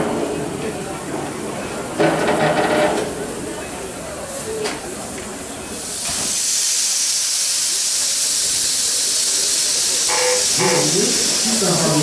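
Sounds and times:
steam locomotive venting steam: 3.8 - 12.0.

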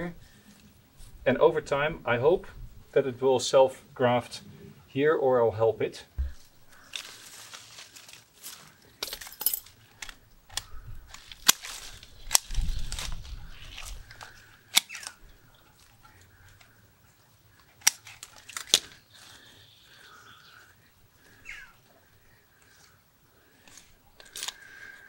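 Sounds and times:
pruning shears snipping twigs: 6.7 - 15.2, 17.6 - 19.0.

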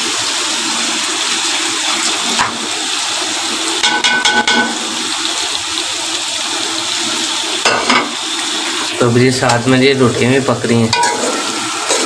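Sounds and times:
food sizzling in pot: 0.0 - 12.0
metal clinking and scraping pot: 3.8 - 4.8, 10.9 - 12.0.

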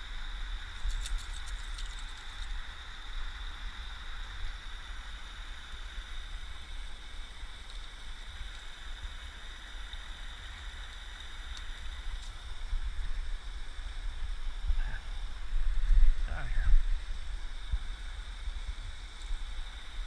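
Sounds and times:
low rumble: 12.6 - 19.6.

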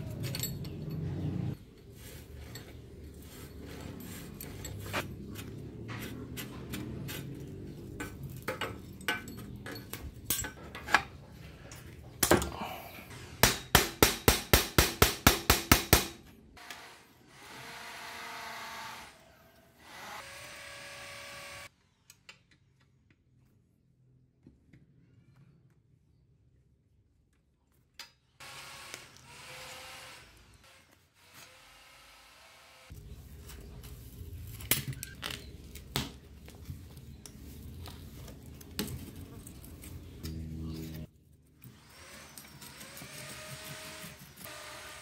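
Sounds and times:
metal tools clinking on bike frame: 0.0 - 5.4, 7.2 - 12.5, 34.3 - 35.6.

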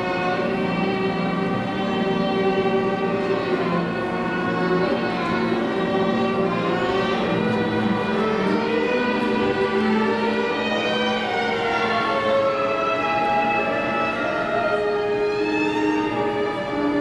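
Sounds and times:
orchestral strings music: 0.0 - 17.0.

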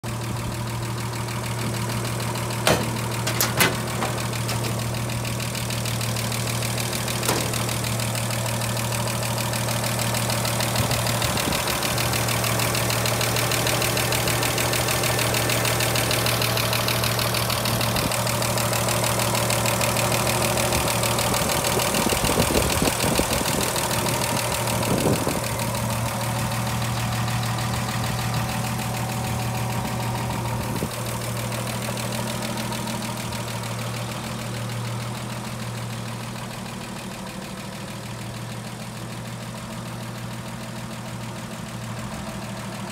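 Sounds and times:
car engine idling: 0.0 - 42.9.

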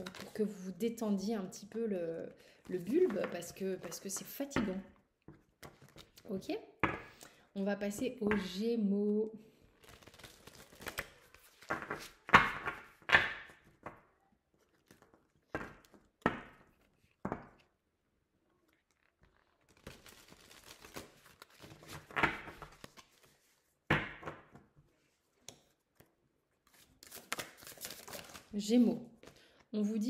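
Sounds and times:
cards shuffling: 9.8 - 13.6, 18.8 - 23.5, 25.6 - 28.5
cards slapping and flicking: 26.7 - 28.5.

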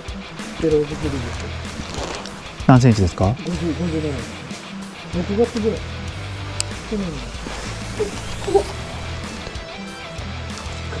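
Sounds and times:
light guitar: 0.0 - 11.0
bass line: 2.5 - 4.5.

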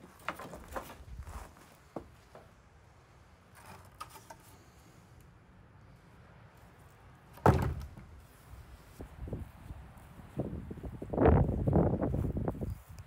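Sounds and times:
sharp knock of wood: 7.4 - 7.9
soft rustle: 8.1 - 13.0.

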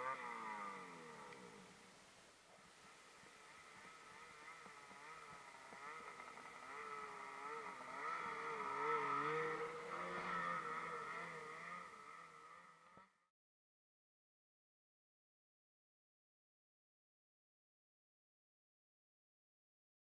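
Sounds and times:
snowmobile engine running: 0.0 - 2.0, 2.6 - 13.2.

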